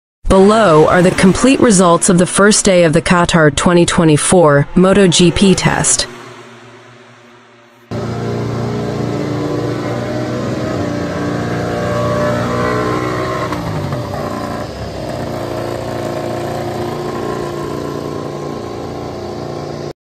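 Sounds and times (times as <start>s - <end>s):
race bike engine revving: 6.1s - 19.9s.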